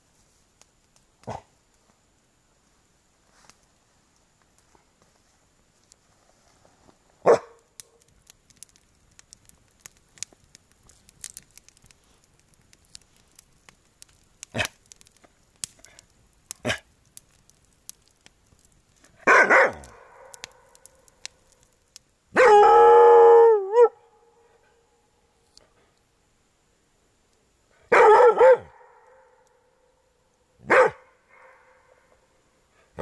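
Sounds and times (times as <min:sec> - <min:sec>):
campfire crackling: 0:00.0 - 0:33.0
dog barking: 0:07.2 - 0:07.6, 0:19.2 - 0:20.4, 0:22.4 - 0:22.7, 0:27.9 - 0:29.1, 0:30.6 - 0:31.9
dog howling: 0:22.4 - 0:24.0.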